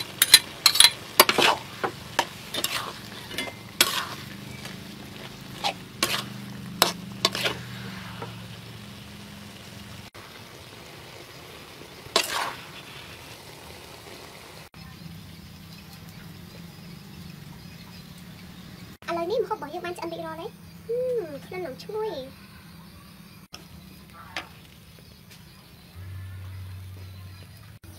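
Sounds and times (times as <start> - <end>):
spatula scraping a wok: 0.0 - 10.5, 11.1 - 13.6
food sizzling: 0.0 - 27.9.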